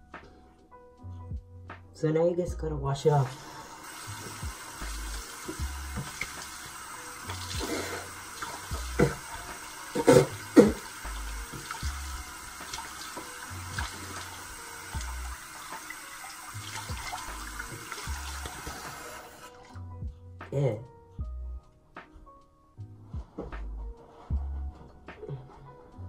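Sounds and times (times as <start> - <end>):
tap running into sink: 3.9 - 19.2.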